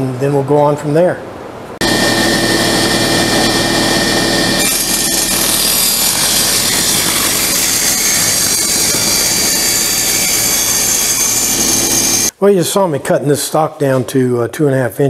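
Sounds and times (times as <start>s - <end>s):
saw blade cutting wood: 1.8s - 12.3s
table saw motor hum: 1.8s - 12.3s.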